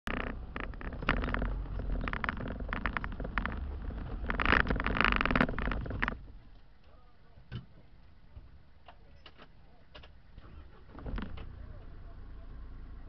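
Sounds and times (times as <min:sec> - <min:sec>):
vehicle engine and road rumble: 0:00.0 - 0:13.0
cab clattering and knocking: 0:00.1 - 0:06.6.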